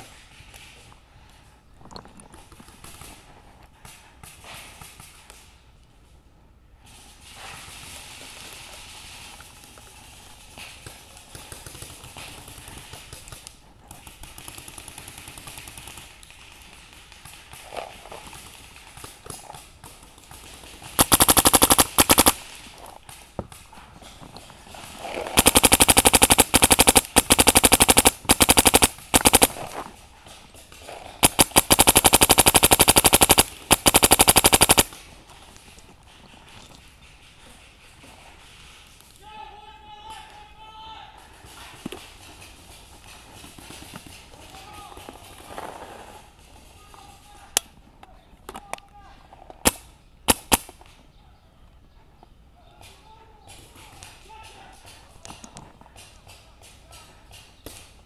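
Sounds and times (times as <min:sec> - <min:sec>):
paintball marker firing bursts: 0:21.0 - 0:22.5, 0:25.3 - 0:29.7, 0:31.2 - 0:34.9, 0:49.6 - 0:50.7.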